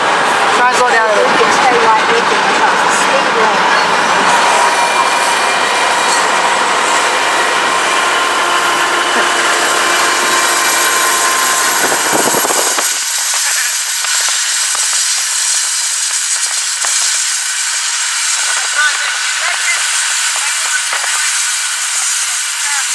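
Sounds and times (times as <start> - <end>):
wind and road noise: 0.0 - 17.0
freight train rumbling: 0.0 - 22.9.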